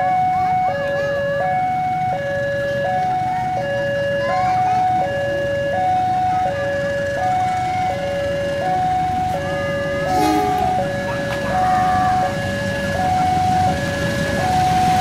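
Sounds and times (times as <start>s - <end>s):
level crossing two-tone alarm: 4.8s - 15.0s.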